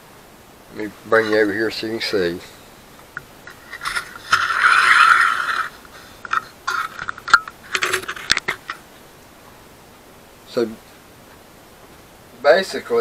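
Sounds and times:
camera handling scrape: 3.5 - 8.6
camera clicks and scrapes on wood: 3.5 - 8.7.

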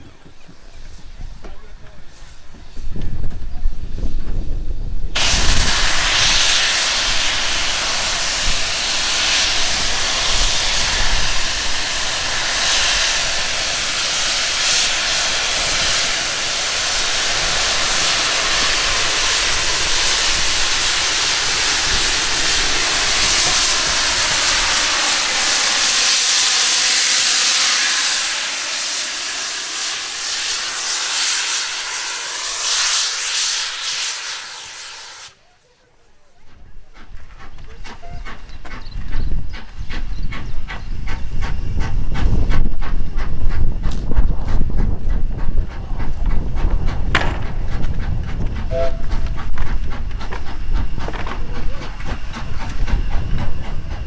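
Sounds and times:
steam hissing from a locomotive: 0.3 - 35.8, 36.4 - 54.0.

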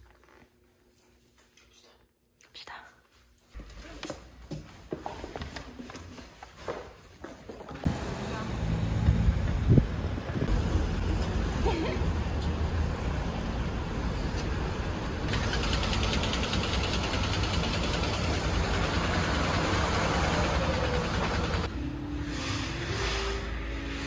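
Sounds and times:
street traffic rumble: 7.8 - 22.2.

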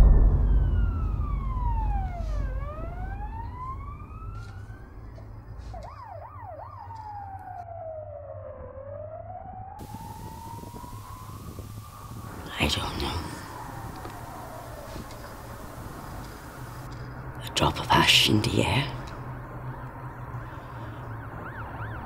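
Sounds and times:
deep boom with low rumble: 0.0 - 5.5
emergency vehicle sirens wailing: 0.0 - 22.0.

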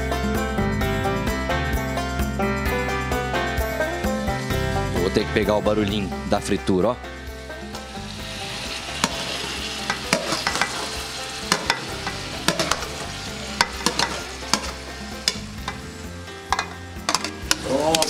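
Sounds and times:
palm heart sizzling in hot oil: 4.2 - 18.0
spoon scraping and clinking metal: 9.9 - 15.9, 16.5 - 18.0.

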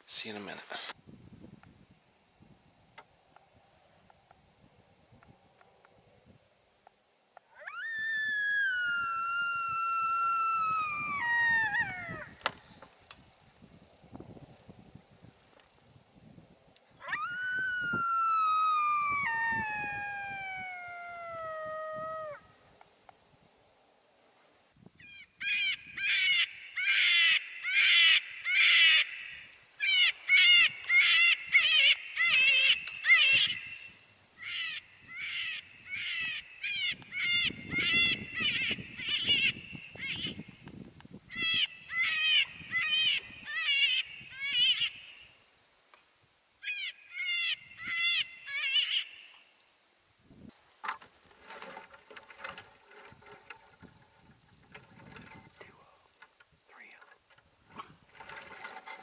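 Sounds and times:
faint rustling: 50.5 - 59.0.

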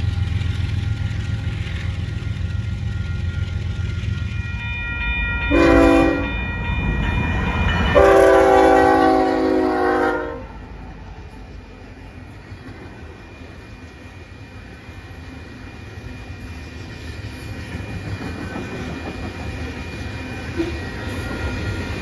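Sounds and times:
locomotive rumble: 0.0 - 4.8
locomotive air horn blasts: 5.5 - 6.4, 8.0 - 10.6.

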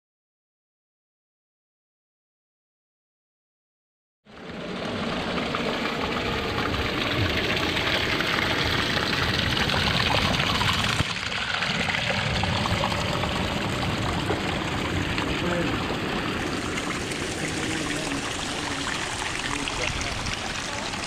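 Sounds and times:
small waterfall splashing: 4.4 - 21.0
water trickling over rock: 4.4 - 21.0.

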